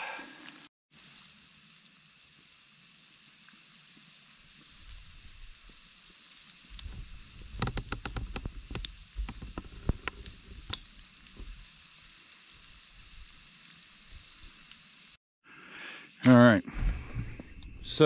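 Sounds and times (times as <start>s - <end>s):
chicken sizzling in hot oil: 0.0s - 15.2s
oil pops and crackles: 3.1s - 15.2s.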